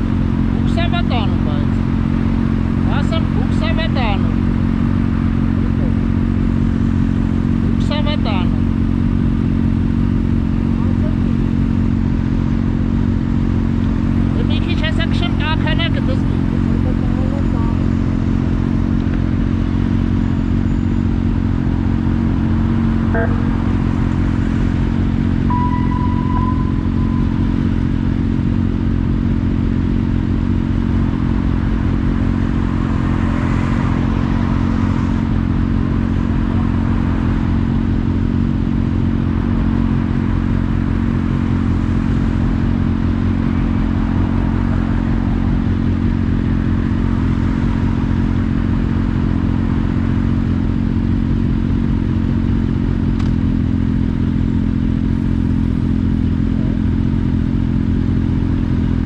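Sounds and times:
motorcycle engine running: 0.0s - 59.0s
brief high tone: 23.1s - 23.8s, 25.4s - 28.8s.

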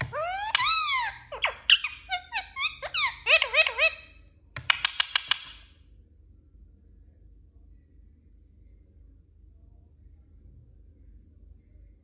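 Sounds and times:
parakeet chattering: 0.0s - 5.6s
parakeet sharp clicks: 4.6s - 5.7s.

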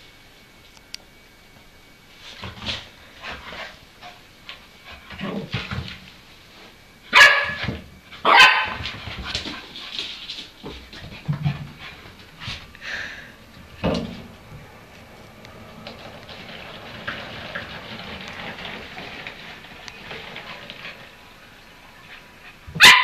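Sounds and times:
dog barking: 7.2s - 7.6s, 8.2s - 8.8s, 22.8s - 23.0s.

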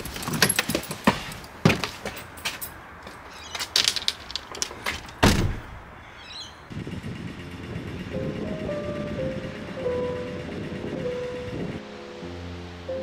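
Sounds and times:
clicks and rustles: 3.5s - 5.2s.

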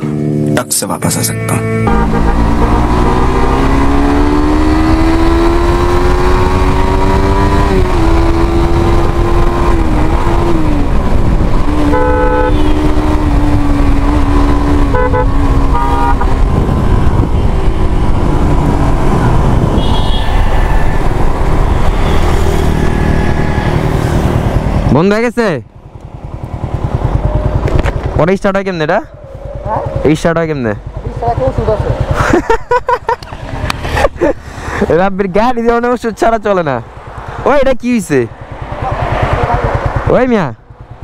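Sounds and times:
vehicle horn honking: 1.2s - 3.2s, 11.8s - 13.0s, 14.8s - 16.4s, 19.6s - 21.0s
motorcycle engine at speed: 1.8s - 41.0s
wind rush on microphone: 6.2s - 23.5s.

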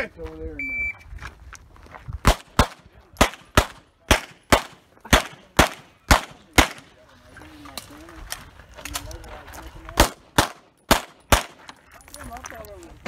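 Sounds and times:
pistol shots: 2.2s - 6.9s, 10.0s - 11.6s.

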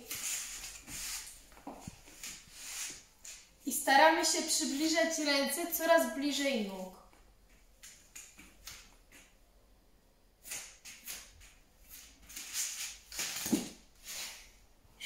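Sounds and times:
soft rustles on exercise mat: 0.0s - 3.6s.

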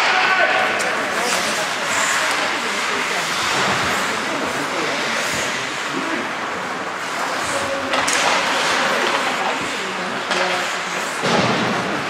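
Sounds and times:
faint voices: 0.0s - 12.0s
skates hissing on ice: 1.0s - 6.3s.

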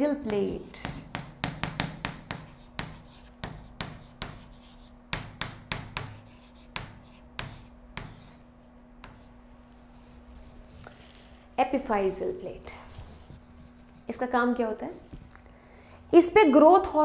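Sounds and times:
marker writing on a board: 0.2s - 11.0s, 13.0s - 15.1s.

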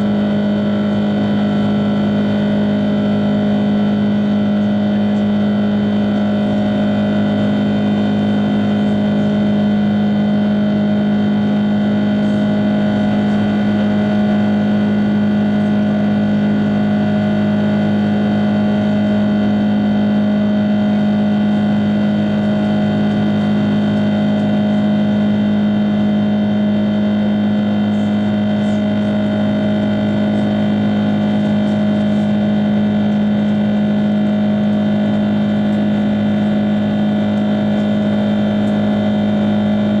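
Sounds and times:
airplane cabin engine drone: 0.0s - 40.0s.

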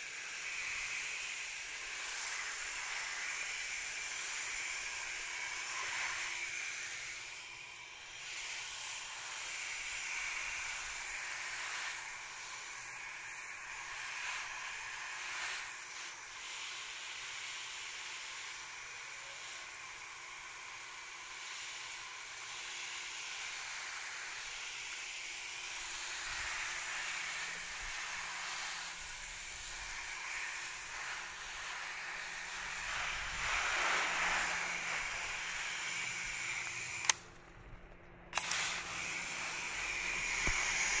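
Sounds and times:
spray nozzle click: 36.6s - 37.2s, 38.3s - 38.9s, 40.2s - 40.8s.

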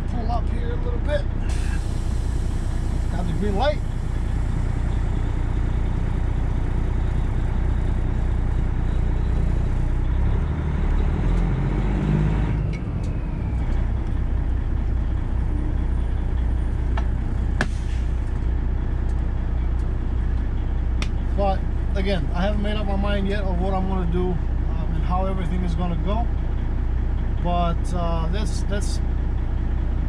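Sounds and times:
truck engine revving: 0.0s - 22.8s.

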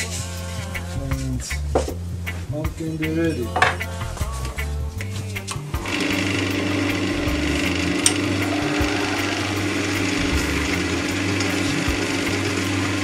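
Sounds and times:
chisel scraping spinning wood: 5.8s - 12.6s
lathe humming: 5.8s - 13.0s.

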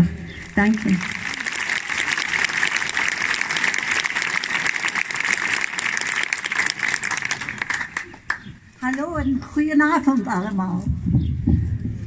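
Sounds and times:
crowd applauding: 0.5s - 8.5s.

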